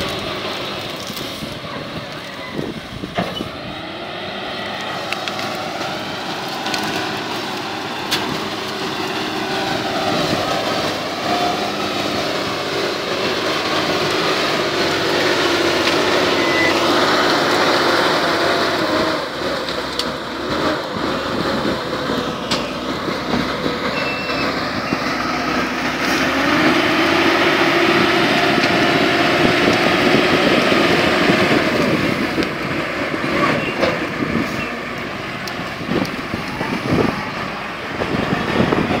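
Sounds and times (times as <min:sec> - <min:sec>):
loader diesel engine under load: 0:00.0 - 0:39.0
sharp knocks and cracks: 0:08.1 - 0:08.5.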